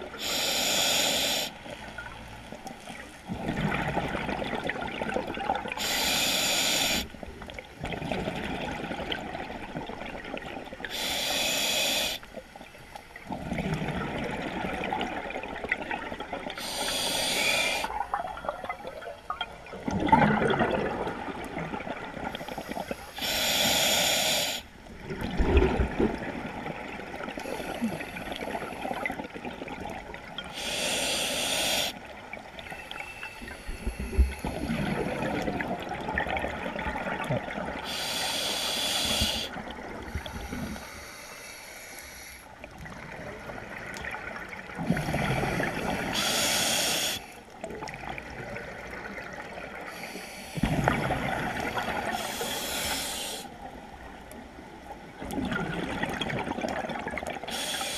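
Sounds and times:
exhaled bubbles gurgling: 0:00.0 - 0:12.1, 0:13.2 - 0:41.0, 0:42.6 - 0:57.9
regulator inhalation hiss: 0:00.2 - 0:01.6, 0:05.8 - 0:07.1, 0:10.9 - 0:12.3, 0:16.6 - 0:18.0, 0:22.4 - 0:24.7, 0:30.6 - 0:32.0, 0:37.8 - 0:39.6, 0:40.4 - 0:42.5, 0:45.8 - 0:47.4, 0:49.9 - 0:50.6, 0:52.0 - 0:53.5, 0:57.5 - 0:57.9.

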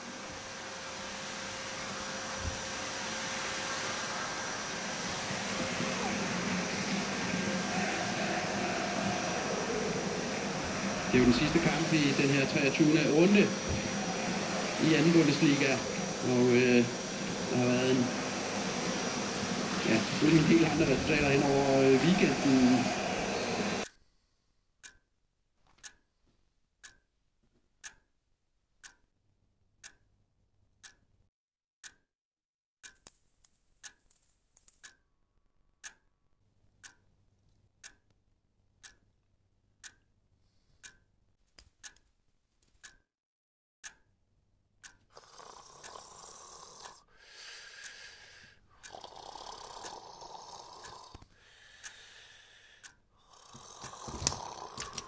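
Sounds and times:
clock ticking: 0:05.5 - 0:23.9, 0:24.8 - 0:25.1, 0:25.8 - 0:26.0, 0:26.8 - 0:27.1, 0:27.8 - 0:28.1, 0:28.8 - 0:29.1, 0:29.8 - 0:30.1, 0:30.8 - 0:31.1, 0:31.8 - 0:32.0, 0:32.8 - 0:33.1, 0:35.8 - 0:36.0, 0:36.8 - 0:37.1, 0:37.8 - 0:38.1, 0:38.8 - 0:39.0, 0:39.8 - 0:40.1, 0:40.8 - 0:41.1, 0:42.8 - 0:43.0, 0:43.8 - 0:44.2, 0:44.8 - 0:45.1, 0:48.8 - 0:52.2, 0:52.8 - 0:55.0
slow heavy breaths: 0:46.3 - 0:48.8, 0:51.3 - 0:54.3.

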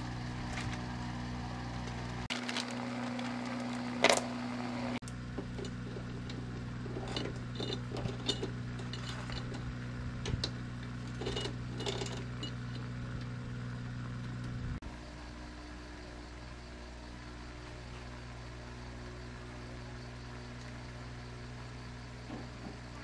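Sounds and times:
steady low hum: 0:00.0 - 0:23.0
metal chain clinking and rattling: 0:05.6 - 0:09.8, 0:10.4 - 0:12.9.

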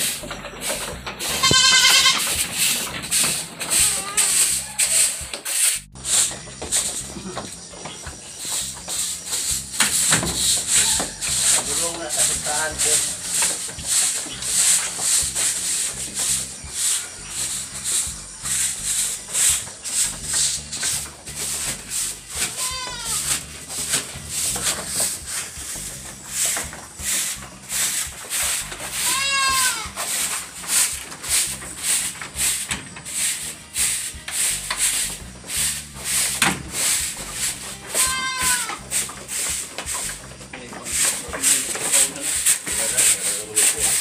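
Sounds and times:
broom sweeping wooden floor: 0:00.0 - 0:44.0
goats bleating: 0:01.4 - 0:02.3, 0:22.4 - 0:23.3, 0:28.9 - 0:30.0, 0:37.9 - 0:38.8.

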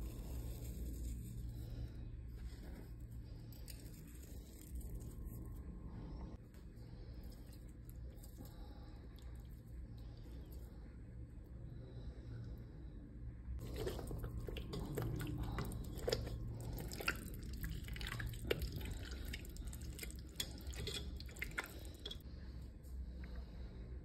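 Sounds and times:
hand squelching meat in paste: 0:13.6 - 0:22.2.

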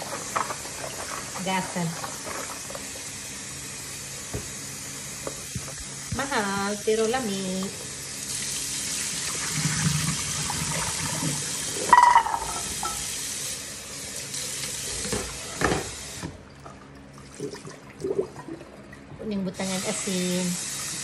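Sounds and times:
faucet running into sink: 0:04.2 - 0:19.0, 0:19.6 - 0:21.0.

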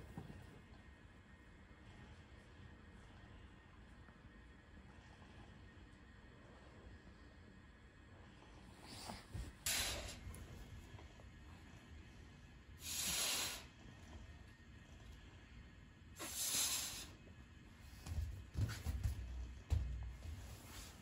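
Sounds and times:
soft breathing: 0:04.8 - 0:15.5
low bumps: 0:17.9 - 0:21.0.

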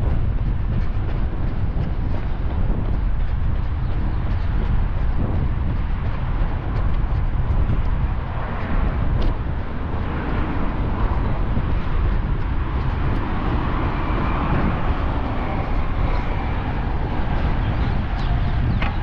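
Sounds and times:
road traffic rumble: 0:00.0 - 0:19.0
vehicle passing: 0:05.4 - 0:19.0.

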